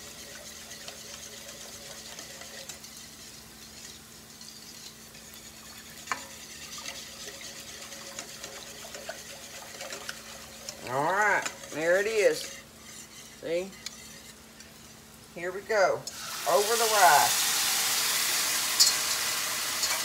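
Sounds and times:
whisk clinking in metal bowl: 0:00.0 - 0:14.9, 0:18.8 - 0:19.2
rice sizzling in skillet: 0:00.0 - 0:20.0.

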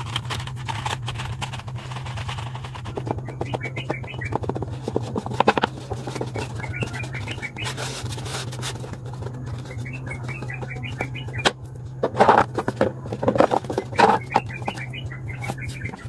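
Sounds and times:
paper rustling and crinkling: 0:00.0 - 0:11.0
fingers scraping on paper: 0:00.0 - 0:16.0.

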